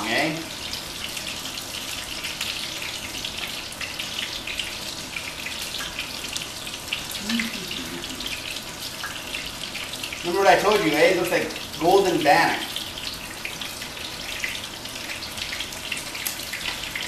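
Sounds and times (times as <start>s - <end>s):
fish frying in oil: 0.0s - 17.0s.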